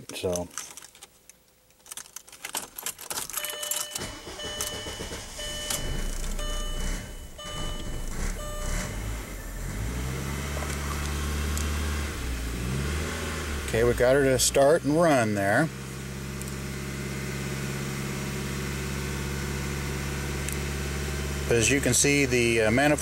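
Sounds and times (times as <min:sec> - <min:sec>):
ignition key clicking: 0:01.9 - 0:08.5
car engine cranking and idling: 0:01.9 - 0:23.0
warning chime beeping: 0:03.4 - 0:09.6.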